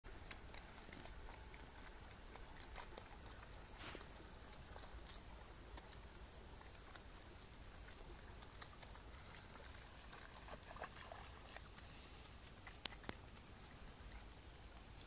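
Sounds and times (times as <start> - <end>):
rustling: 0.3 - 15.0
faint footsteps on grass: 3.7 - 4.4.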